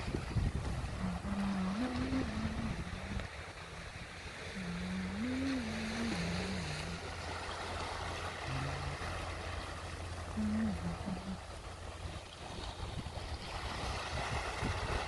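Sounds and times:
wind on microphone: 0.0s - 9.4s, 10.3s - 15.0s
waves washing over rocky shore: 0.0s - 15.0s
low wavering tone: 0.9s - 12.5s.

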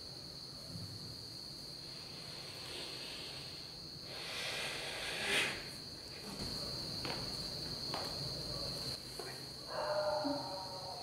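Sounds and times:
night insects chirring: 0.0s - 11.0s.

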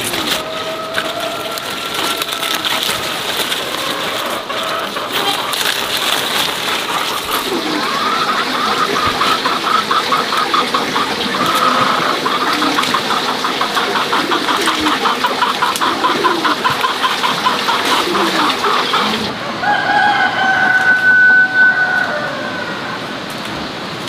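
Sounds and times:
leafy greens rustling and snapping: 0.0s - 16.9s
chickens clucking: 0.0s - 23.4s.

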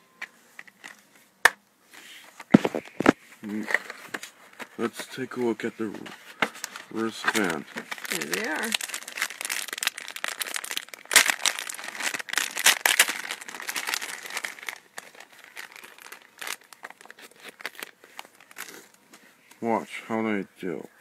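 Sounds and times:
plastic bag crinkling: 6.5s - 19.0s.

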